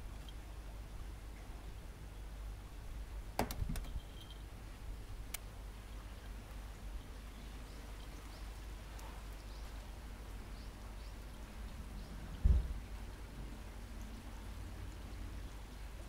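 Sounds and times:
faint high chirps: 3.8s - 4.5s
brief low thump: 12.4s - 12.8s.

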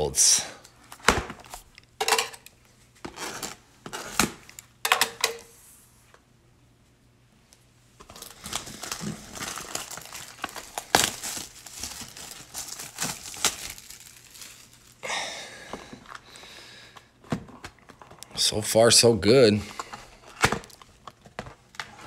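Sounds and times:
plastic wrap tearing and crackling: 8.0s - 15.0s, 20.2s - 22.0s.

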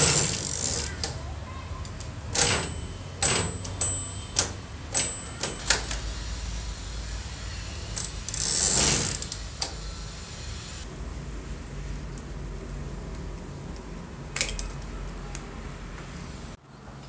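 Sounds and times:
typewriter carriage clicks: 0.0s - 1.2s, 1.8s - 6.0s
typewriter carriage sliding: 0.0s - 1.2s, 1.9s - 6.0s, 8.0s - 9.4s.

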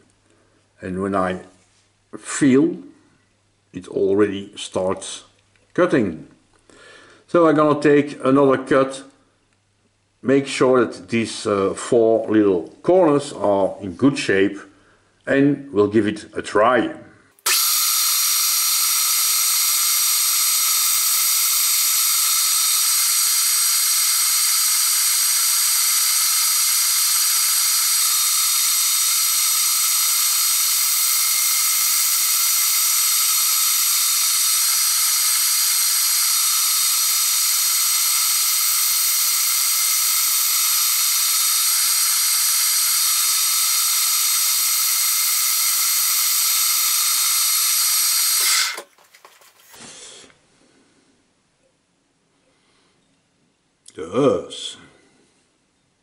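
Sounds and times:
grinding wheel hissing and whining: 17.5s - 48.8s.

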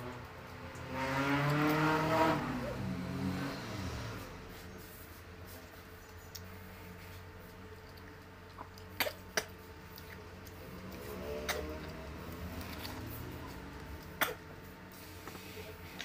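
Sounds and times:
pineapple crunching when bitten: 7.5s - 14.4s.

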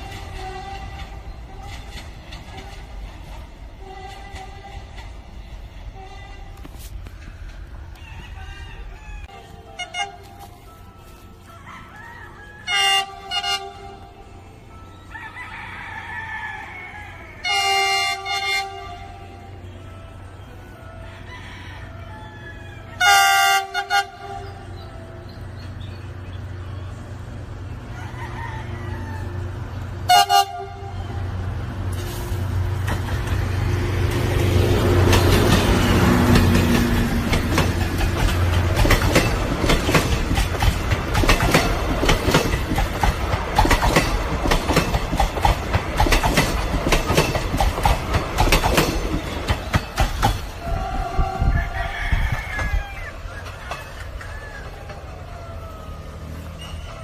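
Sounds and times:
train horn blast: 0.0s - 7.0s, 9.3s - 11.1s, 12.6s - 14.8s, 17.2s - 22.1s, 22.8s - 25.4s, 30.0s - 32.6s
wheels clacking over rail joints: 0.0s - 8.1s, 31.8s - 51.2s, 52.6s - 57.0s
locomotive engine drone: 0.0s - 57.0s.

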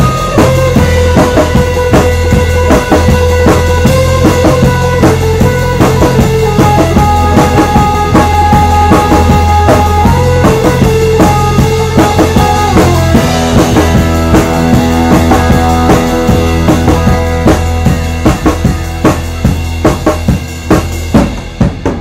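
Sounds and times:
organ holding long notes: 0.0s - 19.6s
drum kit beat: 0.0s - 22.0s
electric bass: 0.0s - 22.0s
electric guitar: 0.0s - 22.0s.

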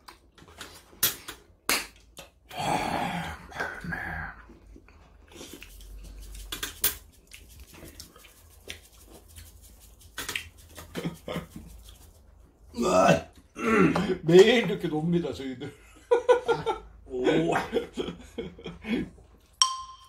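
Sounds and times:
chewing: 4.4s - 12.3s.

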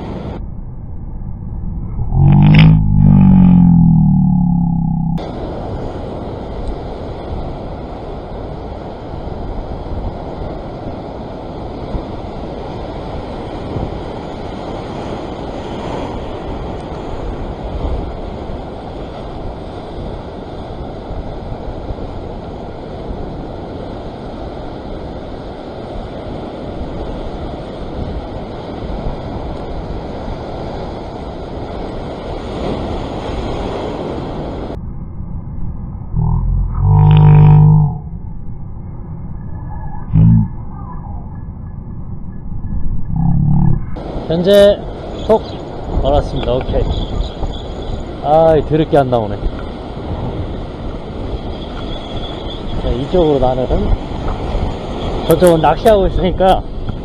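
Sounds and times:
surf breaking over rocks: 44.0s - 57.0s.

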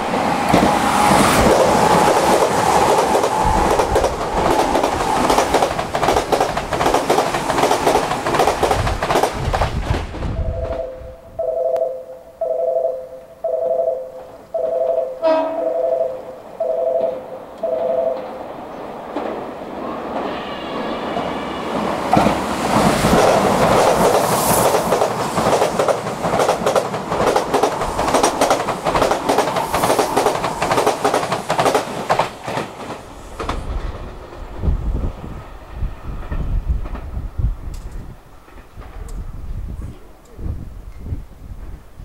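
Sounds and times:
wheels clacking over rail joints: 0.0s - 10.8s, 21.1s - 34.0s
electric train passing: 0.0s - 39.8s.

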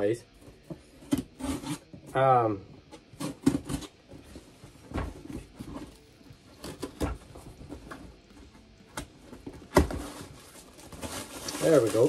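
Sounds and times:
knife cutting packing tape: 1.0s - 1.9s.

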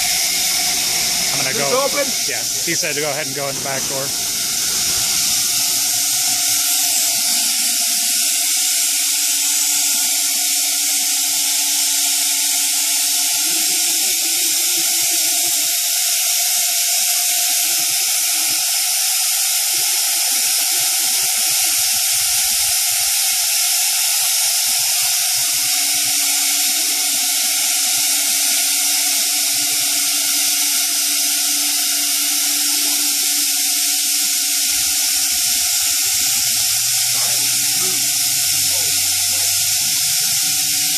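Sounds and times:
low machine hum: 0.0s - 8.1s, 34.6s - 40.9s
cnc router hissing: 0.0s - 40.9s.

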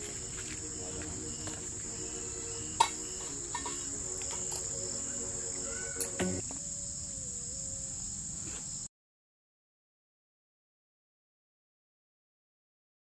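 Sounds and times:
crickets chirring: 0.0s - 8.9s.

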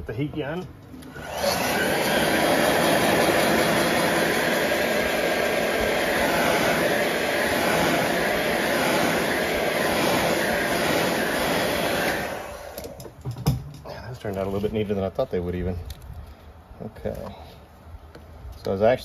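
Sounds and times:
heat gun fan blowing: 0.2s - 13.6s.

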